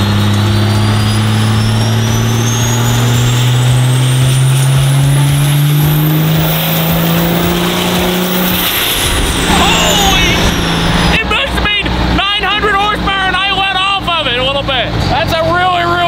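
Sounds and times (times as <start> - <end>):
diesel engine under load: 0.0 - 16.0
turbo whistle: 6.4 - 11.3.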